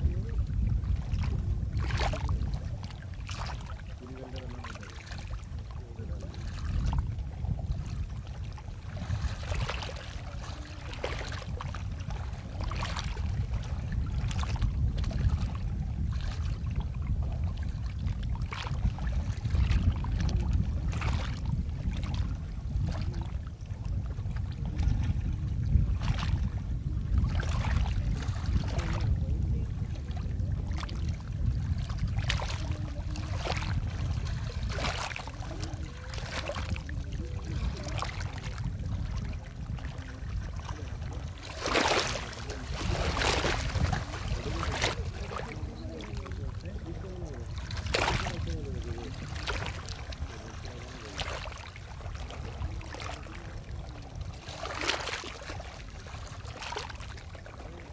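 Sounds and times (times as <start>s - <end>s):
water lapping around canoe: 0.0s - 57.9s
wind rumble on microphone: 0.0s - 57.9s.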